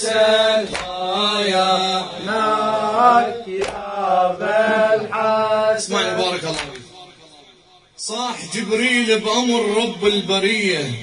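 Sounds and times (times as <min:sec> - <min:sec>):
man chanting: 0:05.0 - 0:11.0.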